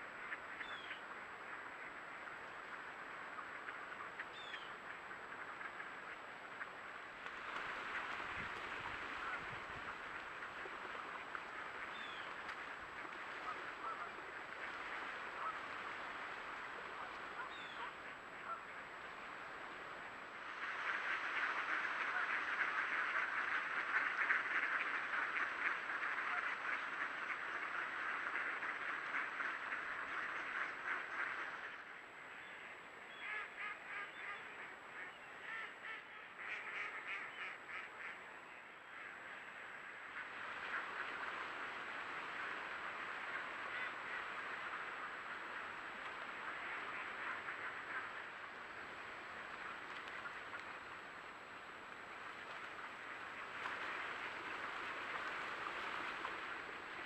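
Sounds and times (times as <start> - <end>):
ducks quacking: 11.3 - 15.8, 20.6 - 32.0, 32.6 - 41.2, 42.4 - 50.8
ducks calling: 32.6 - 39.2.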